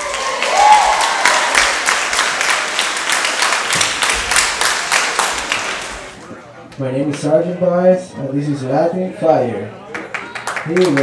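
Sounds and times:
audience applauding: 0.0 - 6.2, 9.9 - 11.0.

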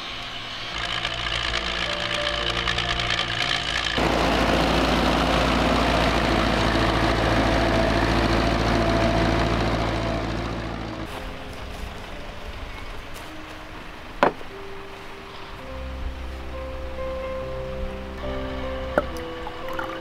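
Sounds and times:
tractor diesel engine running: 0.0 - 13.3.

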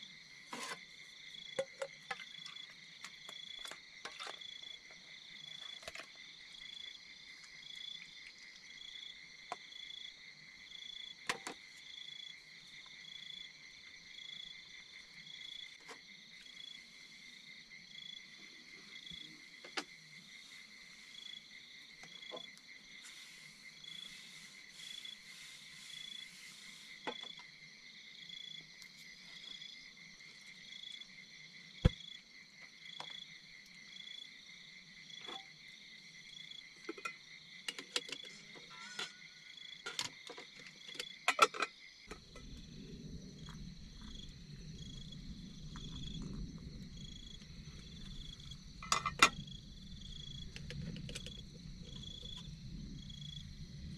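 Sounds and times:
insects trilling: 0.0 - 53.9
low rumble: 42.2 - 53.9.

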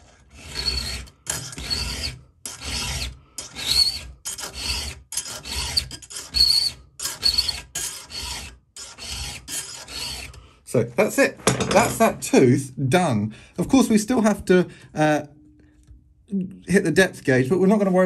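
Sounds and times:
file rasping on saw chain: 0.0 - 10.4
high-pitched squeak: 5.7 - 7.6.

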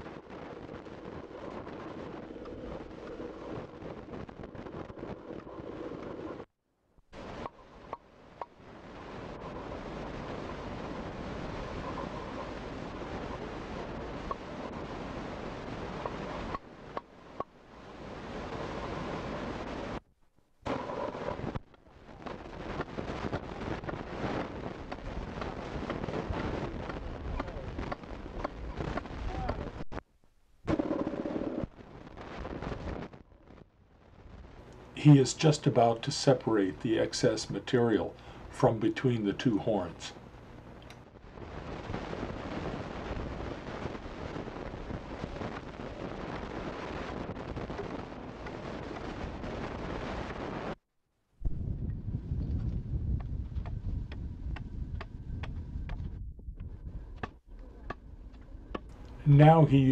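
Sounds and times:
wind buffeting microphone: 0.0 - 6.5, 7.2 - 20.0, 20.7 - 30.0, 40.3 - 50.8, 51.4 - 59.9
steady background hiss: 7.2 - 50.8, 57.6 - 59.9
adze chopping wood: 57.2 - 58.0.

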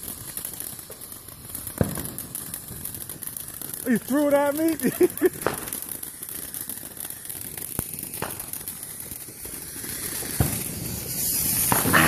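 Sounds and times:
firework fountain hissing: 0.0 - 12.0
crackling pops: 1.7 - 9.4, 11.2 - 12.0.

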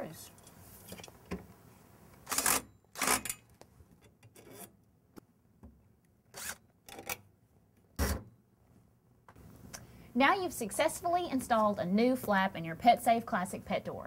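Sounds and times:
cordless drill driving screws: 2.3 - 3.2, 6.4 - 6.6.

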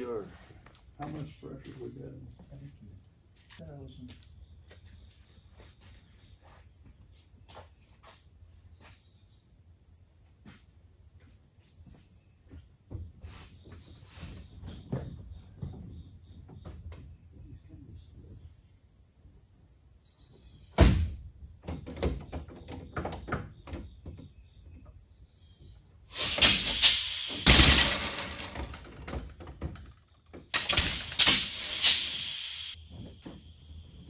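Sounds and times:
compressed air hissing: 26.1 - 28.4, 30.6 - 32.8.

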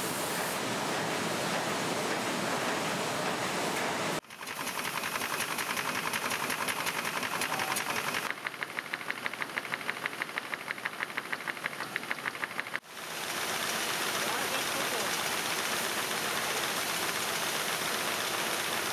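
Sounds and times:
folding machine clacking: 4.2 - 12.8.

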